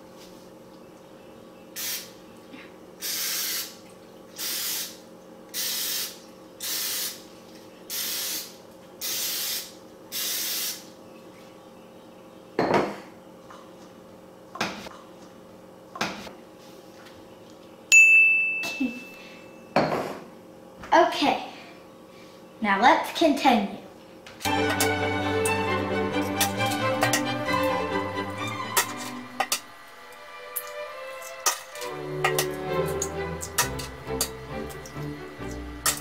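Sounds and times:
aerosol spray hisses: 1.8s - 2.1s, 3.0s - 3.8s, 5.6s - 7.2s, 7.9s - 10.9s
loud bright ringing tone: 17.9s - 20.0s.

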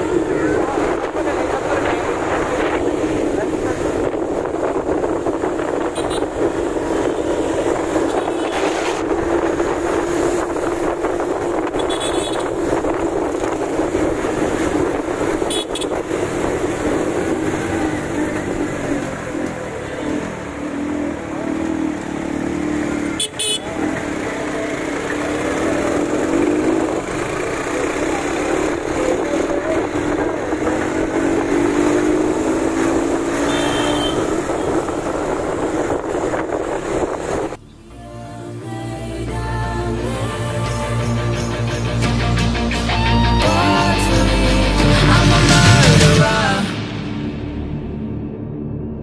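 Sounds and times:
wind rushing over microphone: 0.0s - 19.8s, 25.8s - 37.6s
motorcycle engine drone: 0.0s - 49.0s.

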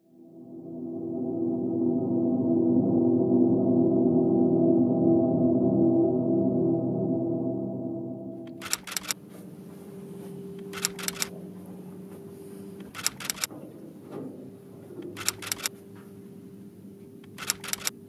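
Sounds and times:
low room hum: 8.4s - 18.0s
sharp clicks: 8.5s - 9.2s, 10.6s - 11.3s, 12.8s - 13.5s, 15.0s - 15.7s, 17.2s - 18.0s.

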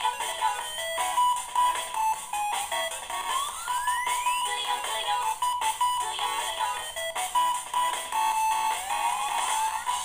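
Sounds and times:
upbeat electronic music: 0.0s - 10.0s.

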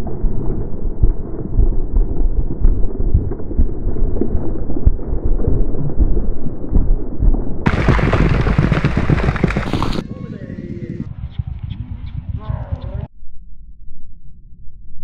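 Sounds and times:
galloping horse hoofbeats on dirt: 7.7s - 10.3s.

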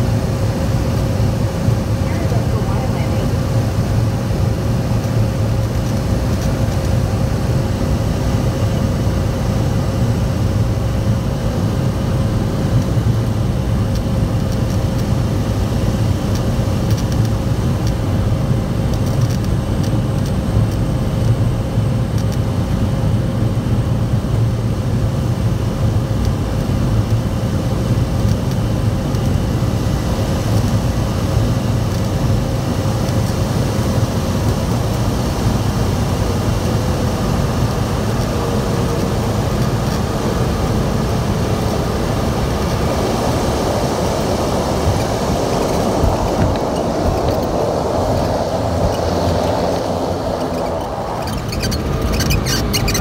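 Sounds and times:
propeller engine rumbling: 0.0s - 53.0s.

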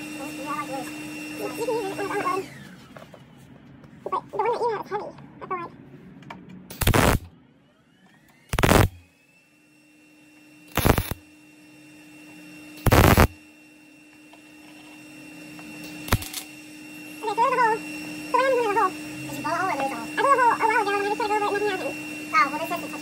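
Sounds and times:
welding bursts: 6.7s - 7.3s, 8.5s - 9.0s, 10.7s - 11.2s, 12.8s - 13.4s, 16.1s - 16.3s
faint steady hum: 12.9s - 13.4s.

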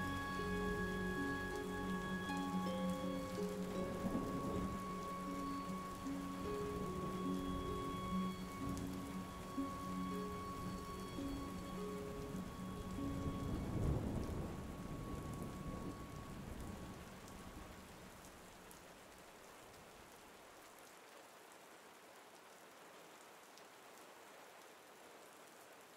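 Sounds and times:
steady rain falling: 0.0s - 25.9s
low rumble of thunder: 3.8s - 5.1s, 12.7s - 17.7s.

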